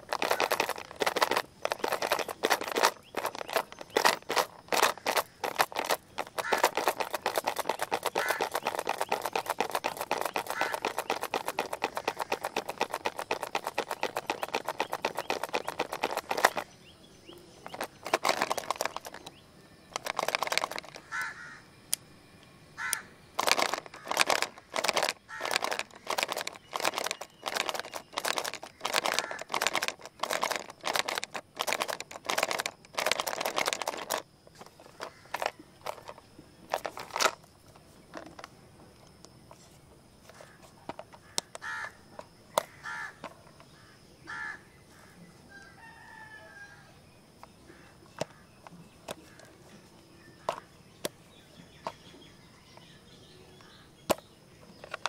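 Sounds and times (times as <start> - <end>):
plastic pencil box rattling: 0.0 - 16.7, 17.6 - 21.3, 23.4 - 37.5, 38.1 - 38.5, 40.2 - 41.8, 48.2 - 49.5, 50.4 - 50.6, 54.8 - 55.0.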